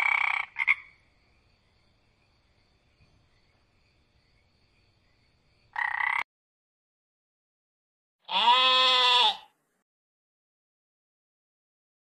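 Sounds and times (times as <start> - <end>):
frog croaking: 0.0 - 1.1, 5.7 - 6.3
sheep bleating: 8.2 - 9.5.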